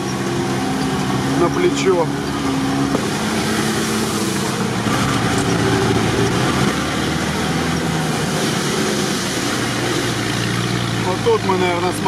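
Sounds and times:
car engine running: 0:00.0 - 0:12.0
tyres hissing on wet dirt road: 0:00.0 - 0:12.0.

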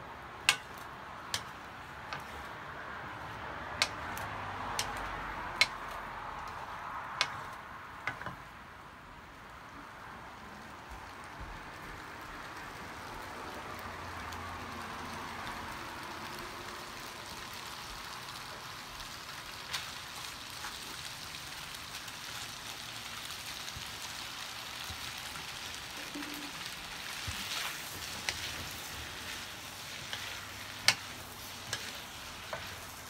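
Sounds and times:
noodles sizzling in a wok: 0:00.0 - 0:08.8, 0:09.5 - 0:33.0
sharp tick: 0:04.8 - 0:06.6.

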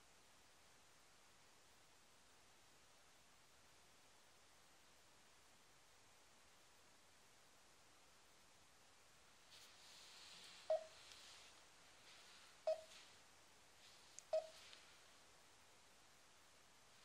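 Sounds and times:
short beeps with clicks: 0:12.7 - 0:12.9, 0:14.3 - 0:14.6.

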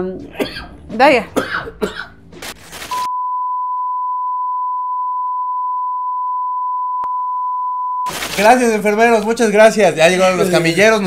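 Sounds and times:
steady test-tone beep: 0:03.0 - 0:08.1.

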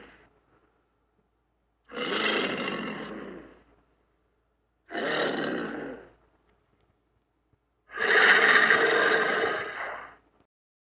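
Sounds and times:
crocodile raspy calls: 0:01.9 - 0:03.6, 0:04.9 - 0:06.2, 0:07.9 - 0:10.2.

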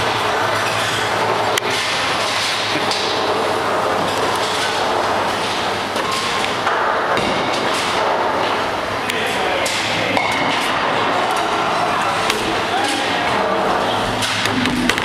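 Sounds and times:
bowling balls rolling: 0:10.2 - 0:15.0
balls knocking pins: 0:14.2 - 0:15.0.

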